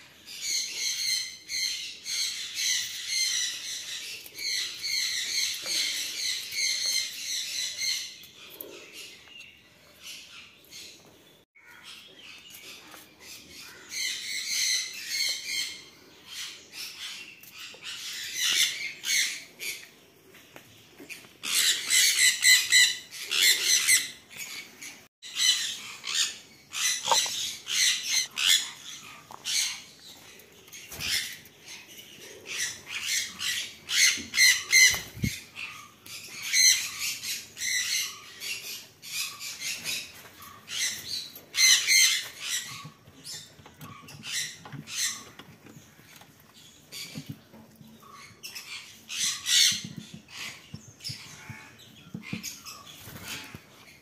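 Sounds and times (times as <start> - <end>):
parrots squawking: 32.5 - 39.8.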